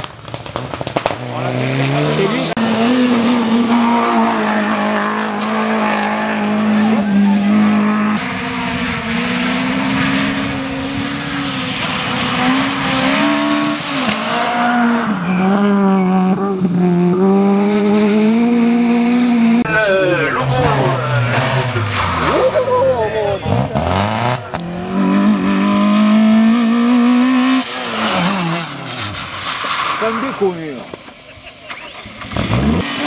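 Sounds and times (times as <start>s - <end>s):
rally car engine revving: 0.3s - 33.0s
tyres squealing: 13.9s - 16.2s.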